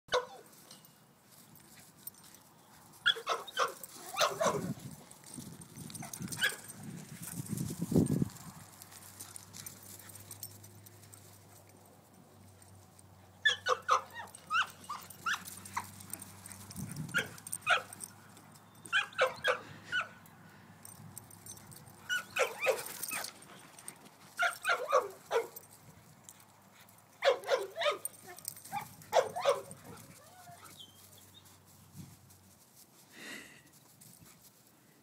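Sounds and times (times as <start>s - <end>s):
dogs yelping and barking: 0.1s - 0.5s, 3.0s - 4.9s, 5.8s - 7.5s, 13.2s - 20.3s, 21.3s - 25.7s, 27.1s - 31.5s.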